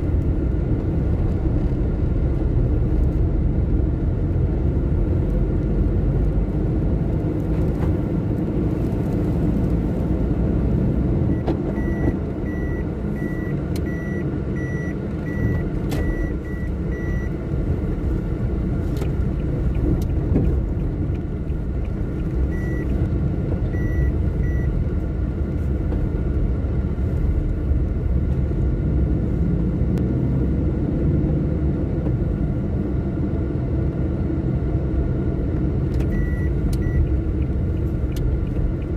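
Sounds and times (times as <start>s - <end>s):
car engine and road rumble: 0.0s - 38.9s
high electronic beeps: 11.3s - 17.4s, 22.5s - 22.9s, 23.7s - 24.7s.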